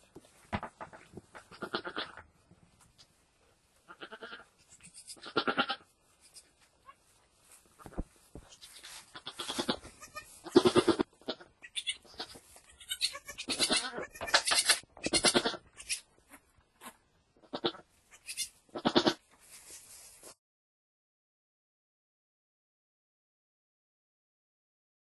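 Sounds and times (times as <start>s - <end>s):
goat bleating: 1.5s - 2.2s, 3.9s - 7.0s, 8.5s - 19.2s.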